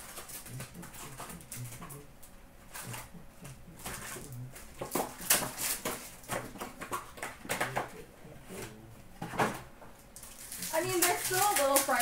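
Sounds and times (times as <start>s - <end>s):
foil card packs tearing: 0.0s - 1.7s, 3.9s - 6.8s, 10.2s - 12.0s
wrappers crinkling: 0.0s - 1.8s, 3.9s - 6.4s, 10.1s - 12.0s.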